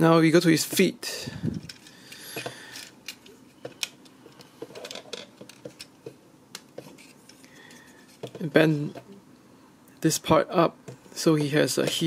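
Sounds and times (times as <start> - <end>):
plastic toy parts clicking: 1.5 - 4.0, 4.8 - 5.9.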